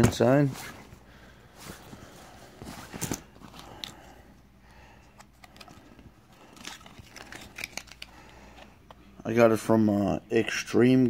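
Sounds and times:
leather rustling: 0.0 - 4.1.

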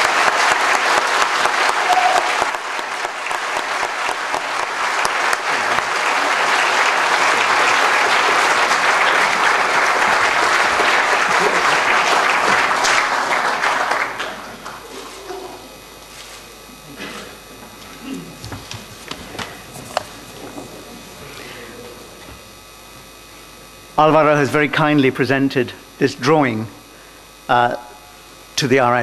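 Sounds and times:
audience applauding: 0.0 - 15.9, 18.4 - 22.5.

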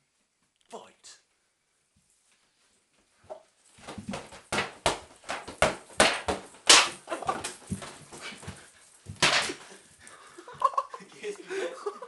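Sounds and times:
whacks and slaps of mock fight: 3.8 - 9.6.

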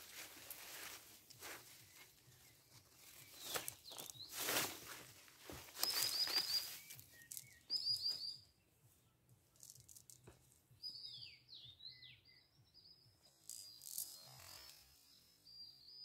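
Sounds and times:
small songbird singing: 1.8 - 4.5, 5.8 - 10.0, 10.7 - 16.0.

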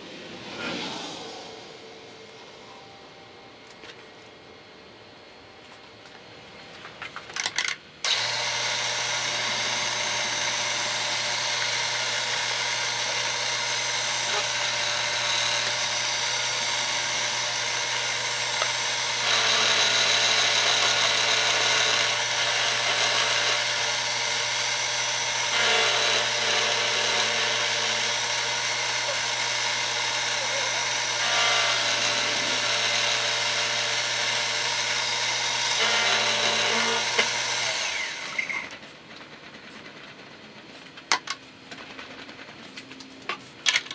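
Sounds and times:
milling machine cutting metal: 8.0 - 38.7.

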